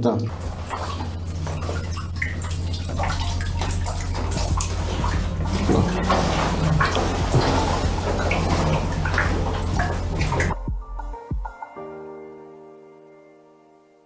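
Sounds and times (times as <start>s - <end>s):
low hum: 0.3s - 10.7s
water sloshing and splashing: 0.3s - 10.7s.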